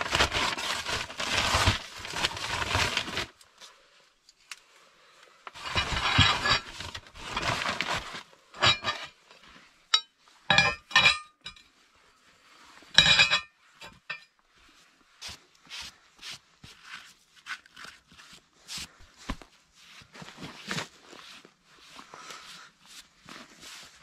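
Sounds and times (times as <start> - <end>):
cast iron stove plates clinking: 9.9 - 11.6, 13.0 - 14.2.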